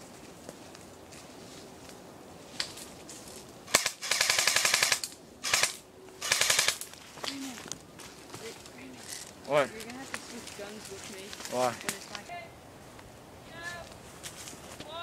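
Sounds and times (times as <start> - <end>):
airsoft rifle firing bursts: 3.7 - 6.8.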